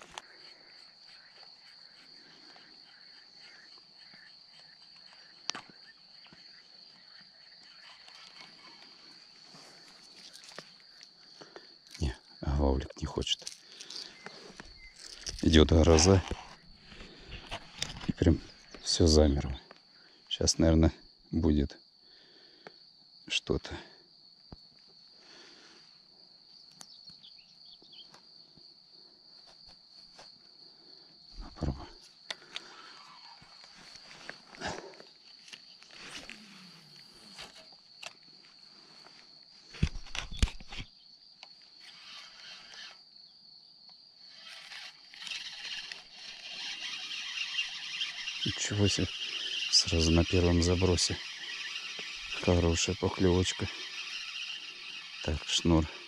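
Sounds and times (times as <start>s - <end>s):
high-pitched insect drone: 0.0s - 19.6s, 31.2s - 39.3s, 40.1s - 56.0s.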